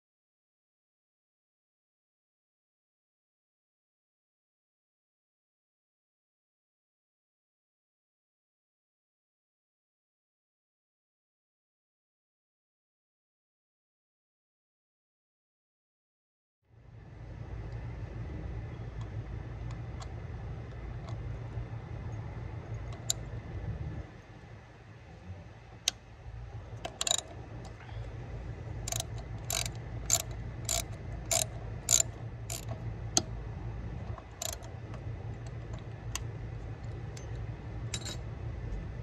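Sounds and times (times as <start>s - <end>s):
steady low rumble: 16.7s - 39.0s
ratchet wrench clicking: 26.8s - 27.8s, 28.8s - 33.3s, 34.2s - 34.8s, 37.1s - 38.2s.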